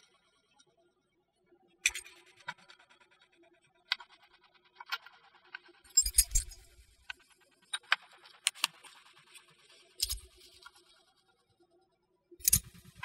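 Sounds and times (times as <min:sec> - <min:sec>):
china pieces clinking: 0:05.9 - 0:06.6.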